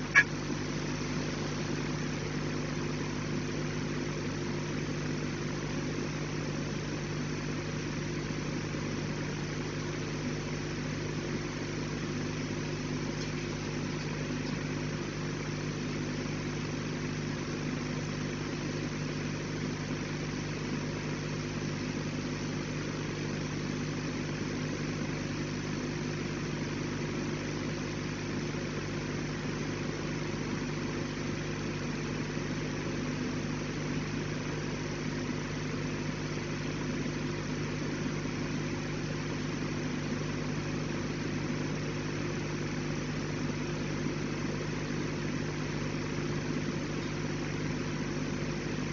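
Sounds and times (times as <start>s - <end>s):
machinery hum: 0.0s - 48.9s.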